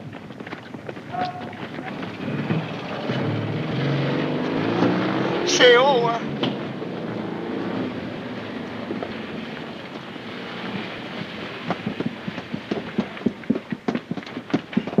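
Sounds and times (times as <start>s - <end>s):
steady rushing noise: 0.0s - 15.0s
short sharp knocks or pops: 11.2s - 15.0s.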